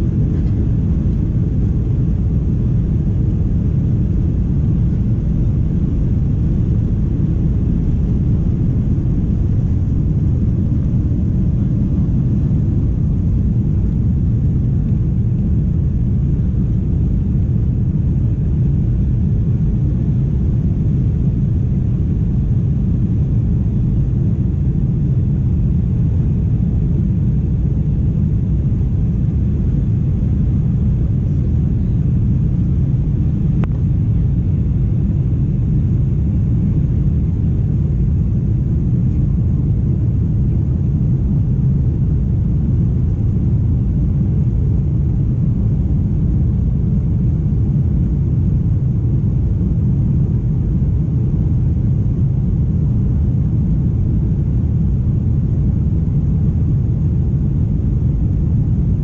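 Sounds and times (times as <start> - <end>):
jet engines low rumble: 0.0 - 59.0.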